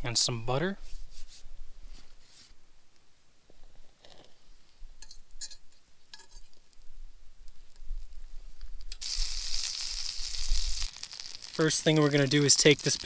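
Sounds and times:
butter sizzling: 0:08.9 - 0:13.0.

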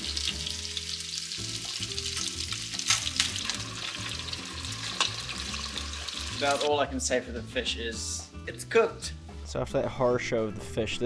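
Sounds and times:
fish frying in hot oil: 0:00.0 - 0:06.7
oil popping: 0:01.6 - 0:06.7.

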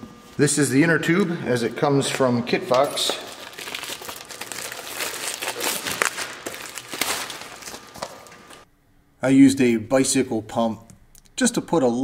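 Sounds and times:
plastic wrapping crinkling: 0:02.0 - 0:08.7.

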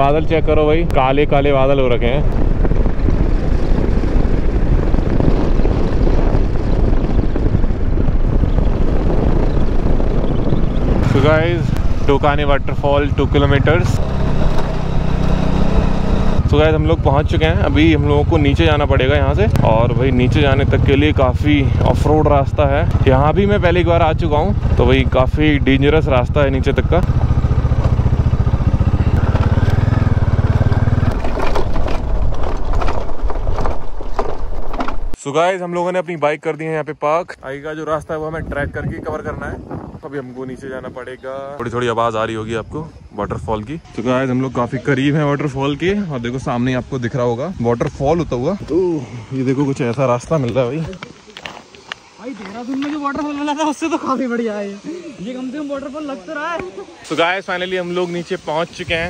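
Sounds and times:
motorcycle engine running: 0:00.0 - 0:35.1
wind noise: 0:00.0 - 0:35.2, 0:37.2 - 0:59.0
bike jolting over loose dirt: 0:30.4 - 0:35.2.

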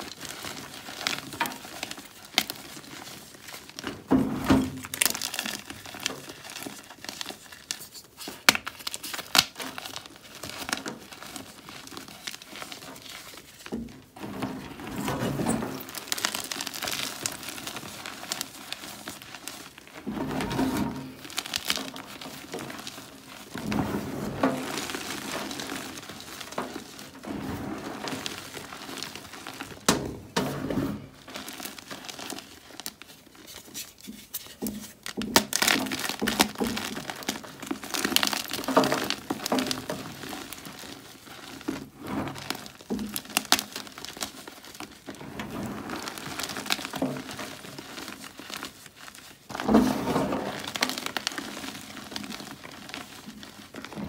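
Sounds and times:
chalk crunching by hand: 0:33.3 - 0:35.0.

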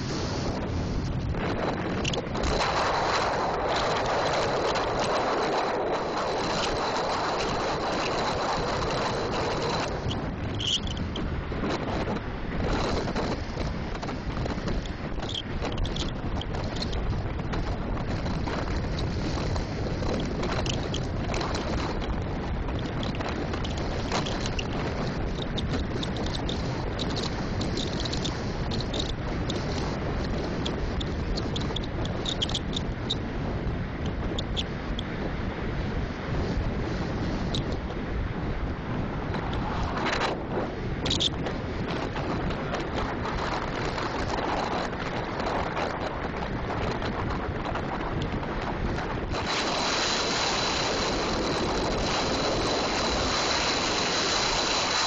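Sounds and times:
wind rushing over microphone: 0:00.0 - 0:55.0.

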